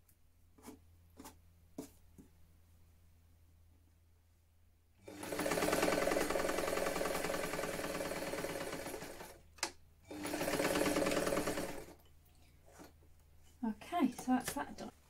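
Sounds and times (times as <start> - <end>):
sewing machine stitching: 5.0 - 12.0.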